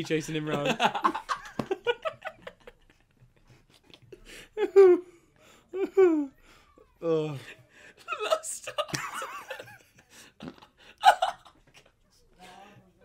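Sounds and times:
young men laughing: 0:00.0 - 0:05.1, 0:07.4 - 0:11.9.

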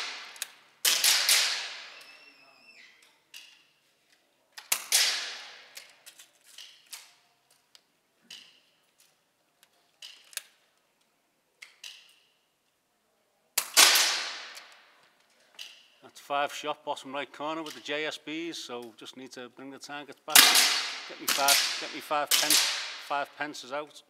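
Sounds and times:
gunshots ringing indoors: 0:00.0 - 0:02.2, 0:04.7 - 0:05.9, 0:13.6 - 0:15.0, 0:20.3 - 0:23.5.

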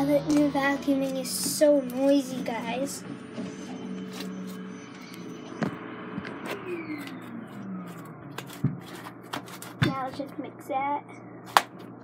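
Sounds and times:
vacuum cleaner running: 0:03.0 - 0:09.3
knocks and clicks of handling objects: 0:08.4 - 0:10.3.

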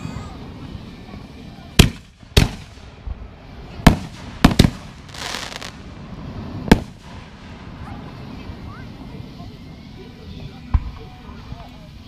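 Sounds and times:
fireworks crackling: 0:00.0 - 0:12.0
fireworks bangs: 0:00.2 - 0:09.2.

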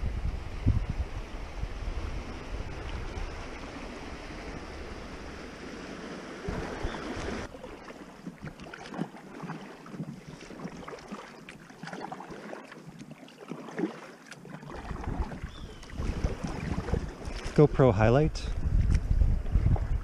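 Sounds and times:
wind rumbling on microphone: 0:00.0 - 0:08.8, 0:14.6 - 0:20.0
creek water washing against raft: 0:00.0 - 0:20.0
paddle splashing in water: 0:02.1 - 0:17.8.

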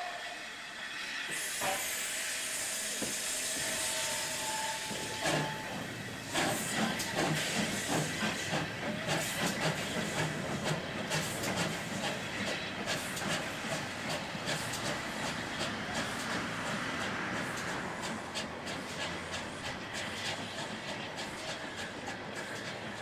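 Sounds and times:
hissing steam: 0:00.0 - 0:23.0
steam locomotive chuffing: 0:00.0 - 0:23.0.

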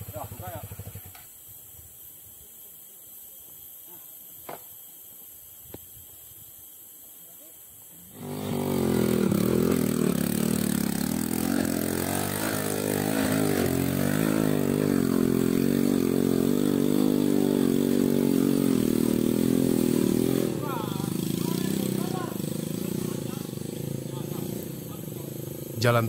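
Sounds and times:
small motorcycle engine revving: 0:00.0 - 0:01.3, 0:08.1 - 0:26.0.

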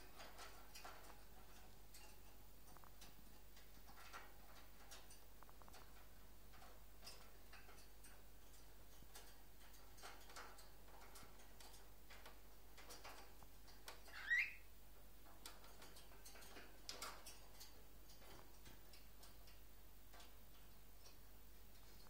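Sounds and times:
beaks and claws ticking on wire: 0:00.0 - 0:14.4, 0:15.2 - 0:22.0
bird rising chirp: 0:14.1 - 0:14.6.

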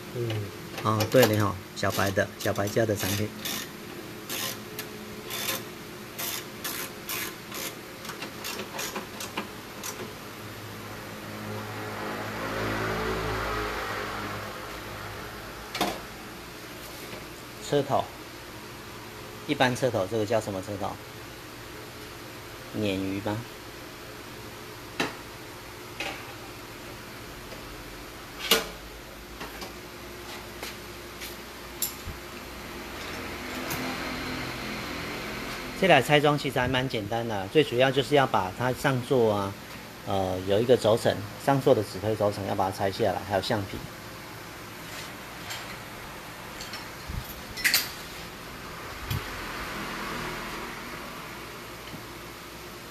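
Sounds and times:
low mechanical hum: 0:00.0 - 0:52.9
hand tools clicking and scraping metal: 0:01.0 - 0:10.1.

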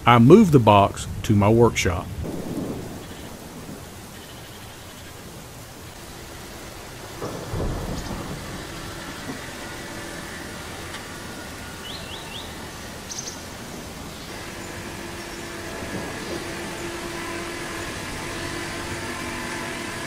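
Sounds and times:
low rumbling noise: 0:00.0 - 0:20.0
tractor diesel engine running: 0:05.7 - 0:20.0.

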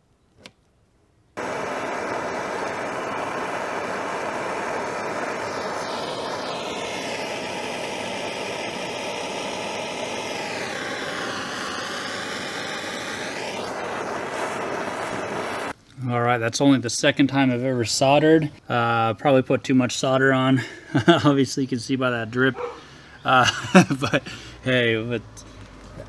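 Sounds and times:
propane torch hissing: 0:01.4 - 0:15.7.

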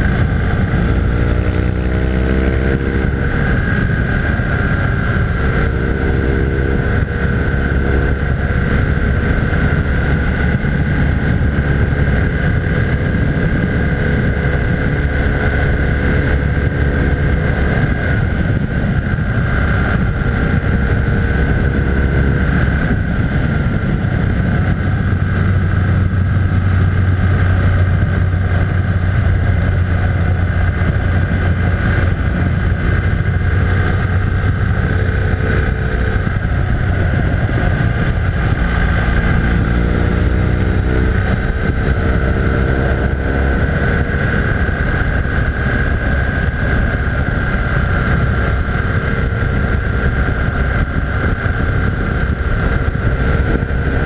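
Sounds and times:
motorcycle engine running: 0:00.0 - 0:54.0
wind noise: 0:00.0 - 0:54.0.

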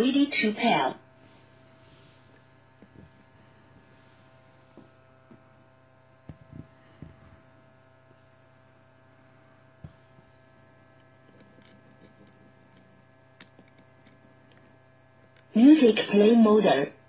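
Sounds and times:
faint electrical hum: 0:00.0 - 0:17.0
microphone handling knocks and clicks: 0:02.7 - 0:03.9, 0:06.2 - 0:07.5.

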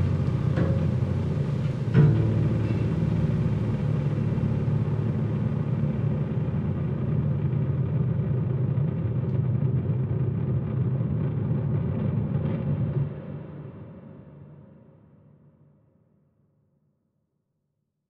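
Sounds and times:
low rumbling bass drone: 0:00.0 - 0:12.8.

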